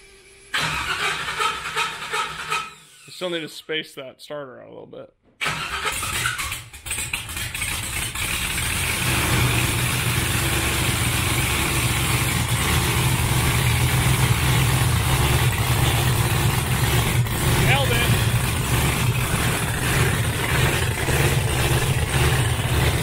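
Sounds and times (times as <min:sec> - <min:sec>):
engine idling through open headers: 0:05.9 - 0:23.0.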